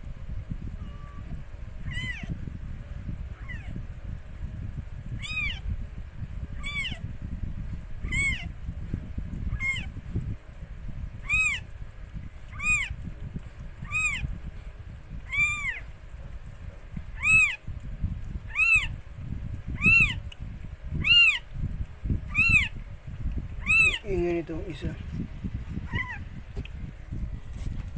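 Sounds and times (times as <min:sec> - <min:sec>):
low rumbling: 0:00.0 - 0:27.9
kitten mewing: 0:01.9 - 0:02.3, 0:03.4 - 0:03.8, 0:05.2 - 0:05.6, 0:06.6 - 0:07.0, 0:08.0 - 0:08.5, 0:09.5 - 0:09.9, 0:11.2 - 0:11.6, 0:12.5 - 0:12.9, 0:13.8 - 0:14.2, 0:15.3 - 0:15.8, 0:17.2 - 0:17.6, 0:18.5 - 0:18.9, 0:22.3 - 0:22.7, 0:23.6 - 0:24.0, 0:25.9 - 0:26.2.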